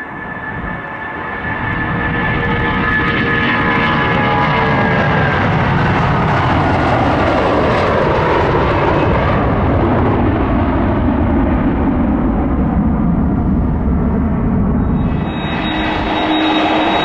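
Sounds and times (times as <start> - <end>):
jet engines passing: 0.0 - 17.0.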